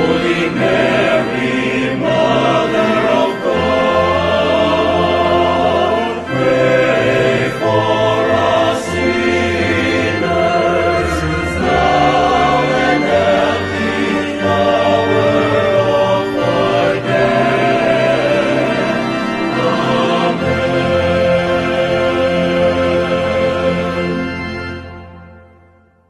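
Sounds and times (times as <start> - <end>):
choir singing: 0.0 - 25.4.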